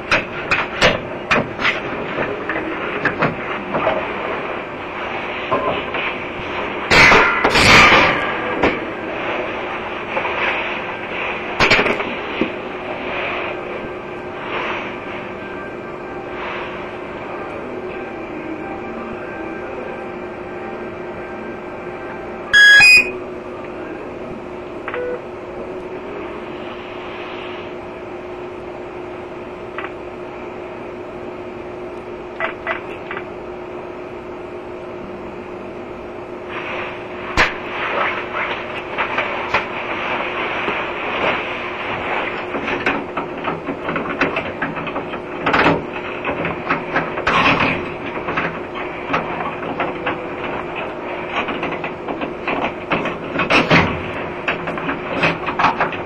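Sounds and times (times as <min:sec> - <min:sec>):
steady hum: 0:00.0 - 0:56.0.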